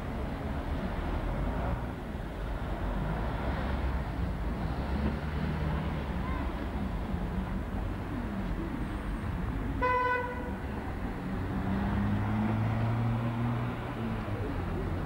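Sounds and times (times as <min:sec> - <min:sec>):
street traffic: 0:00.0 - 0:15.0
car horn toot: 0:09.8 - 0:10.5.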